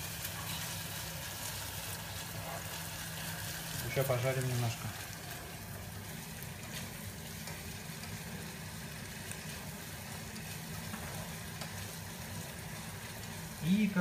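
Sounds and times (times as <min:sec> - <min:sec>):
onions and mushrooms sizzling: 0:00.0 - 0:14.0.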